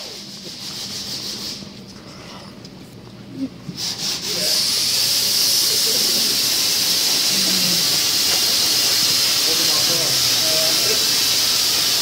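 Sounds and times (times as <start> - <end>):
loud steady hiss: 3.8 - 12.0.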